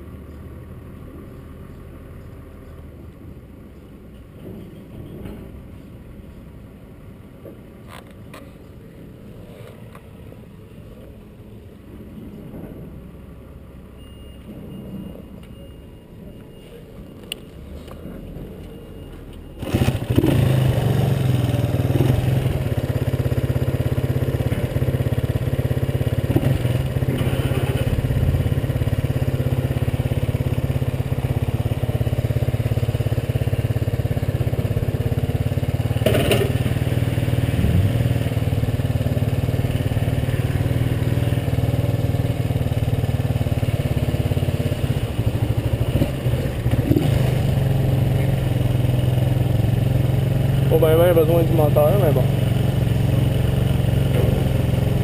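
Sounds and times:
motorcycle engine idling: 0:19.6 - 0:55.0.

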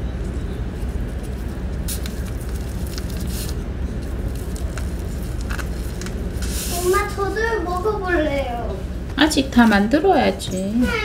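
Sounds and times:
seaweed sheet rustling: 0:00.7 - 0:08.2.

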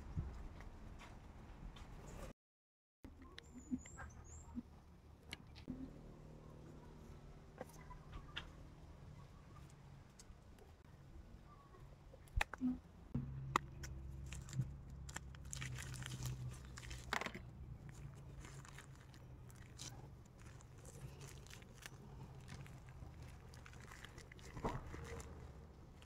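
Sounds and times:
low steady hum: 0:04.4 - 0:26.0
plastic film crinkling: 0:14.1 - 0:26.0.

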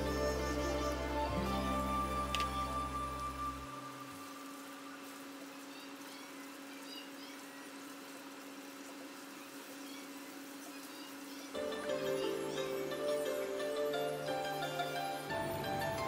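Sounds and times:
background music: 0:00.0 - 0:04.3, 0:11.6 - 0:16.0.

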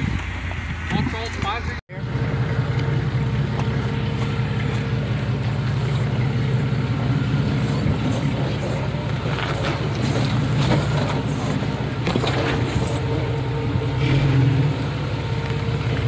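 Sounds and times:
vehicle engine low drone: 0:00.0 - 0:16.0
stones crunching under tyres: 0:02.7 - 0:13.3.

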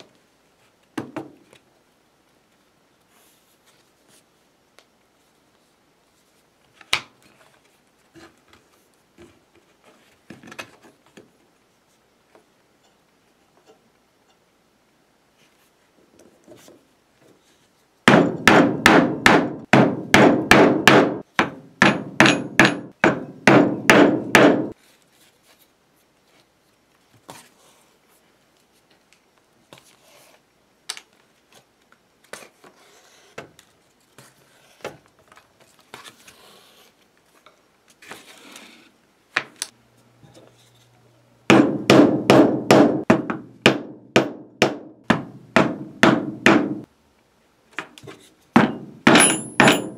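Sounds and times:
mallet knocking chisel through leather: 0:18.1 - 0:24.8, 0:41.5 - 0:46.9, 0:48.6 - 0:49.9
tool clatter and handling: 0:48.1 - 0:49.9.

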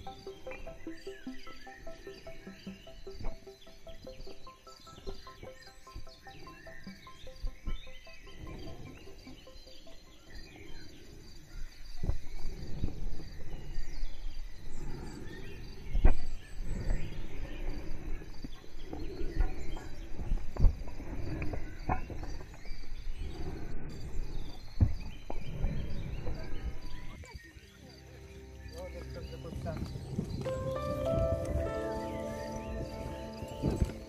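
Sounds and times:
faint birds chirping: 0:00.0 - 0:34.0
wind rumble: 0:05.5 - 0:27.4, 0:29.3 - 0:34.0.

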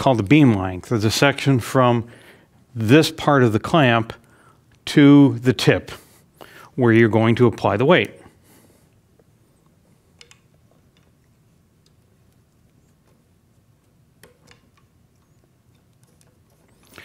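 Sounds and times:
faint clicks and taps: 0:09.2 - 0:17.0.

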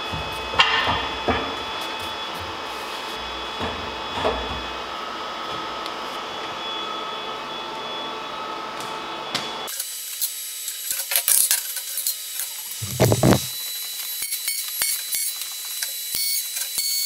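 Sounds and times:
respirator blower fan whirring: 0:12.8 - 0:13.5.

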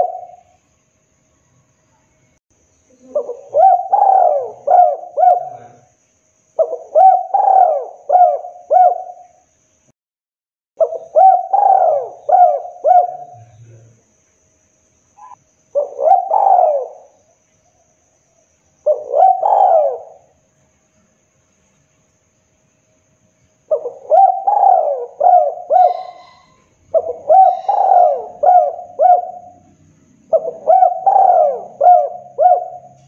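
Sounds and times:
dove cooing: 0:00.0 - 0:00.6, 0:02.9 - 0:05.9, 0:06.6 - 0:09.3, 0:10.8 - 0:13.5, 0:15.2 - 0:17.2, 0:18.8 - 0:20.3, 0:23.7 - 0:33.0.

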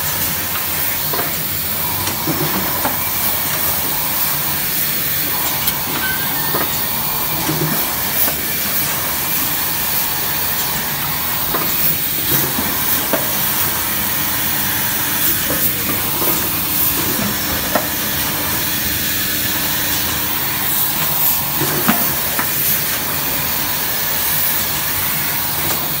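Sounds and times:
printing machine hissing: 0:00.0 - 0:26.0.

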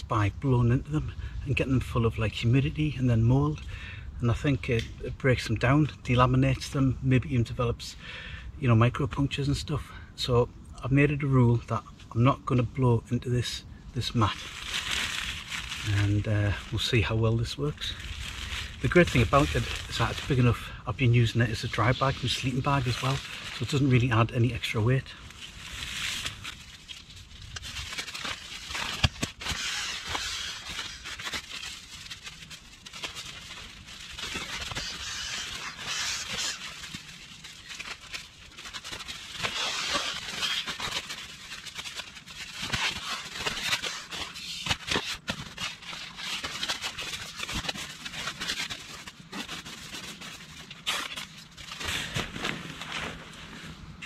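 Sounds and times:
fabric crinkle: 0:14.0 - 0:54.0
nylon sack rustling and swishing: 0:14.0 - 0:54.0.

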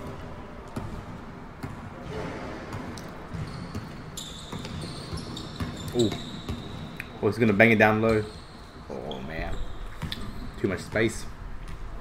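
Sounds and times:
basketball bouncing in gym: 0:00.0 - 0:12.0
high steady squeak: 0:08.2 - 0:09.9.

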